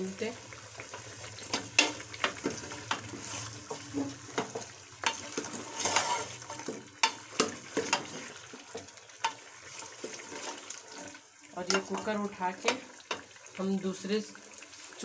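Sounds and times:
faint sizzle: 0.0 - 15.0
spoon and bones knocking pot: 1.5 - 3.1.

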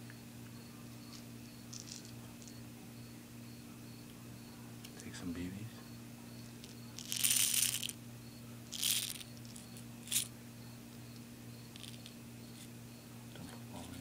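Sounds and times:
pellets rattling: 1.7 - 2.5, 6.6 - 8.0, 8.7 - 10.3, 11.7 - 12.7.

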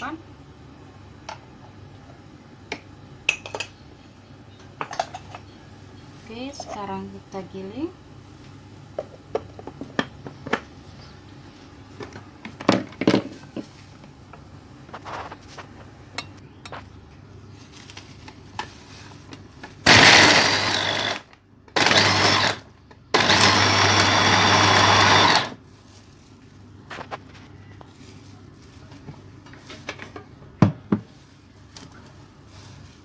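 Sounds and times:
electric food chopper grinding: 19.8 - 25.6.

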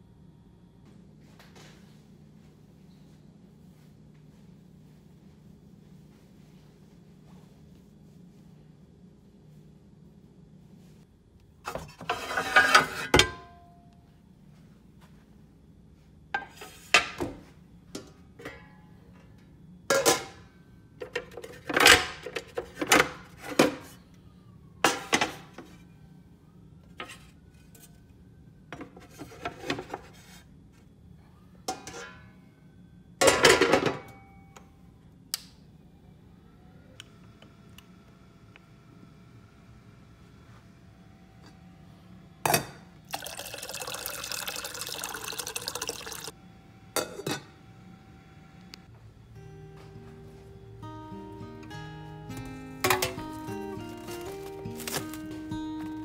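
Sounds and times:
metal pans clanking: 11.7 - 13.6, 19.9 - 20.4, 31.7 - 32.3, 52.8 - 53.4.

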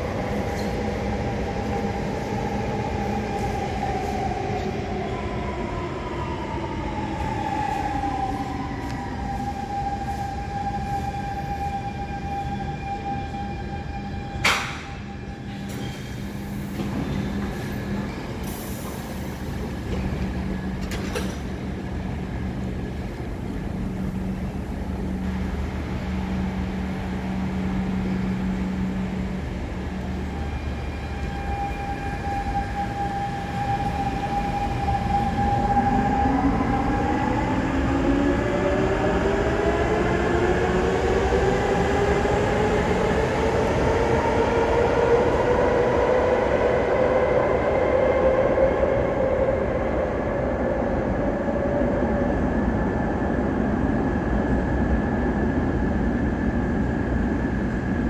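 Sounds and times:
electric train whine: 0.0 - 58.0.

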